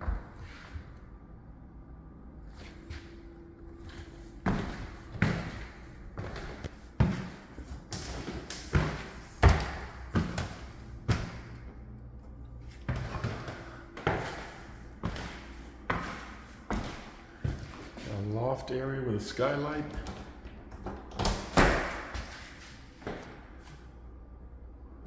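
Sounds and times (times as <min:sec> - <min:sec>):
footsteps on wooden stairs: 0:03.8 - 0:11.7, 0:12.7 - 0:18.1.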